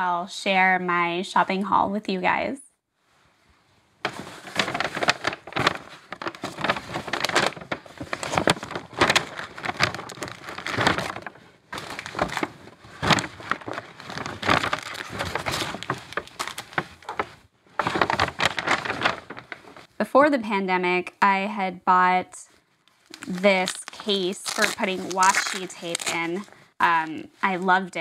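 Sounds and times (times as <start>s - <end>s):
paper bag crinkling: 4.1s - 19.9s, 23.0s - 26.6s.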